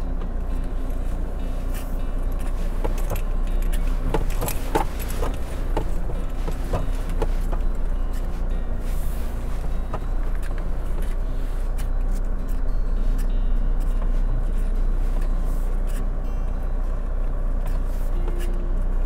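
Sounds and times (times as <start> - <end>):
car engine and tyres rumbling: 0.0 - 19.0
loose things rattling in car: 0.0 - 19.0.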